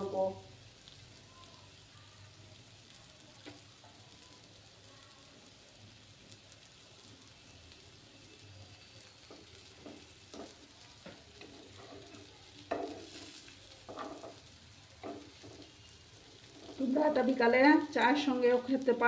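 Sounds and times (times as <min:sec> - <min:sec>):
pancakes sizzling in oil: 0:00.0 - 0:19.0
steel spatula scraping pan: 0:11.4 - 0:14.4.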